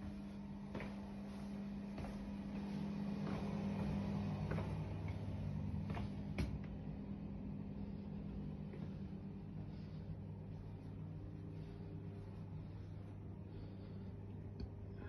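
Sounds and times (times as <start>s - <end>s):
footsteps and floor creaks: 0.0s - 7.1s
steady low hum: 0.0s - 15.0s.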